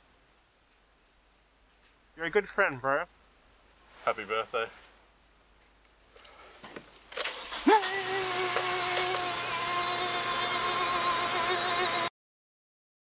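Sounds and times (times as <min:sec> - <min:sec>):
car engine starting: 0:07.1 - 0:12.1
loud electric buzz: 0:07.2 - 0:12.1.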